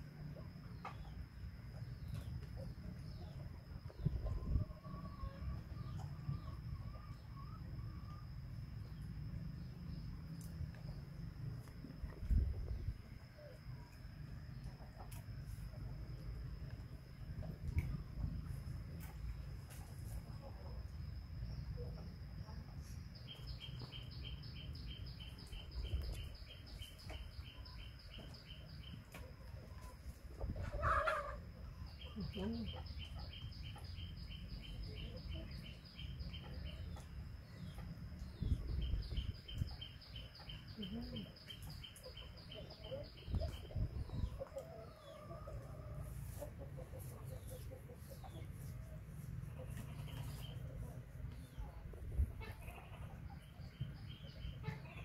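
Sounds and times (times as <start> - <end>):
insect chirping: 0.0 - 29.1
hen clucking: 30.4 - 32.9, 42.1 - 48.8, 52.3 - 53.4.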